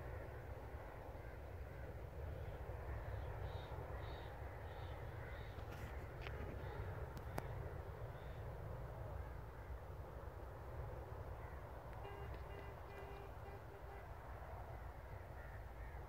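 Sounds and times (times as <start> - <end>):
wind rumble on microphone: 0.0 - 16.0
sharp clicks: 11.9 - 13.4
bird calling short notes: 12.0 - 14.1.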